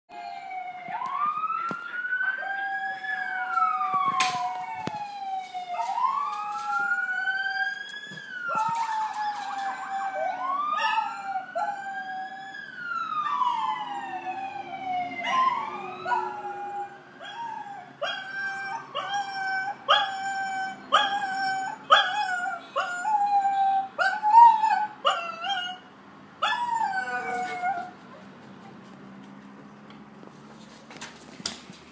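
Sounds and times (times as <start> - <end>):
emergency vehicle sirens wailing: 0.1 - 29.7
puppy howling: 8.5 - 12.6, 15.2 - 25.8, 26.4 - 28.0.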